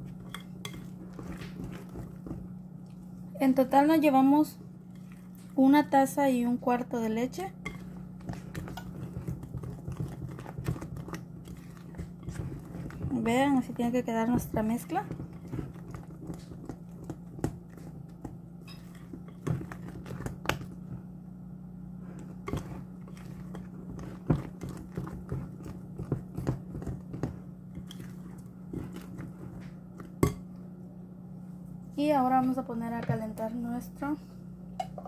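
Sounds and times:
whisk beating batter: 0:00.0 - 0:21.1, 0:22.2 - 0:30.5
steady low hum: 0:00.0 - 0:35.0
whisk tapping glass bowl: 0:07.6 - 0:20.7.

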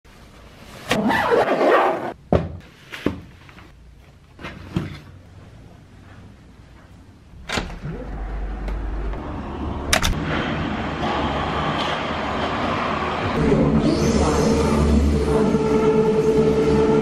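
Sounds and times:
low rumble: 0:07.4 - 0:17.0.

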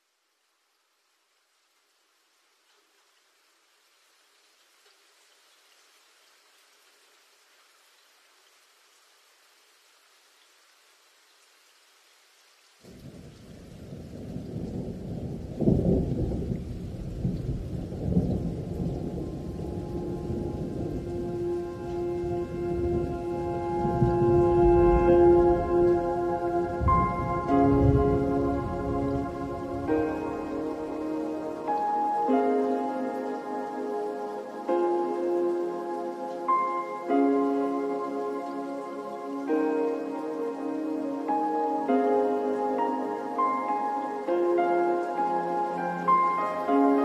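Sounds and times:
rain: 0:00.0 - 0:47.0
rolling thunder: 0:13.0 - 0:31.6
soft chords held notes: 0:18.8 - 0:47.0
steady musical tones: 0:19.4 - 0:47.0.

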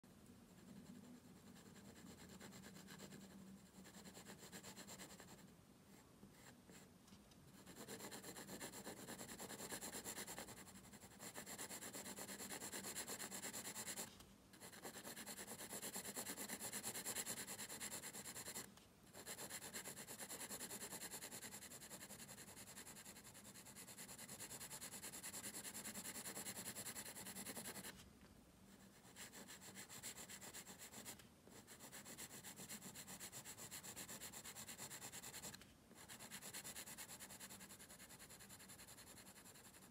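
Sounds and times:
pencil scratching on paper: 0:00.5 - 0:06.9, 0:07.5 - 0:28.0, 0:28.7 - 0:39.9.

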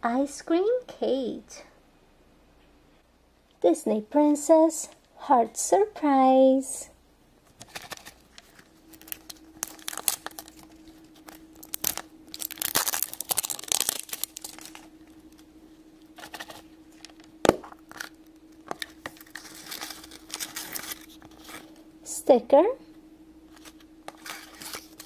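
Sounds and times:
plastic wrapping crinkling and tearing: 0:07.6 - 0:15.4, 0:16.0 - 0:21.8, 0:23.5 - 0:25.0.

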